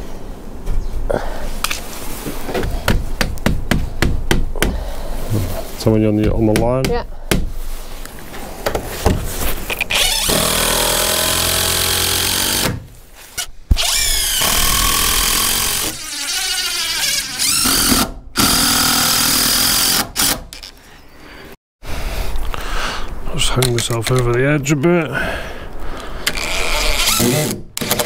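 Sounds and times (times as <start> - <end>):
cordless drill driving screws: 9.8 - 12.8, 13.4 - 20.7, 26.2 - 28.0.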